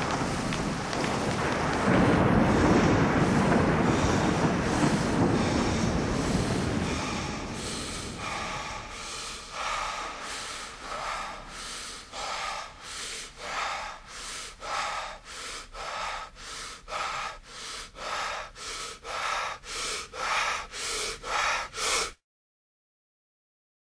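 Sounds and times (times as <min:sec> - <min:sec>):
heavy rasping breathing: 0:02.5 - 0:22.2.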